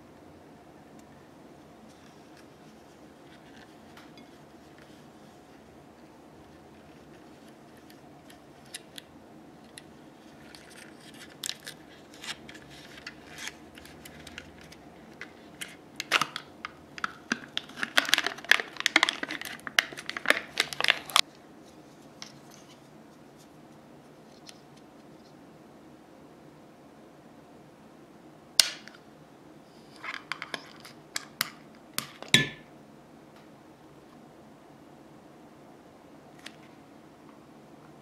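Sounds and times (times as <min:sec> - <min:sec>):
foil lid peeling and crinkling: 0:09.7 - 0:21.2
plastic cup clicks and rustles: 0:09.7 - 0:21.2.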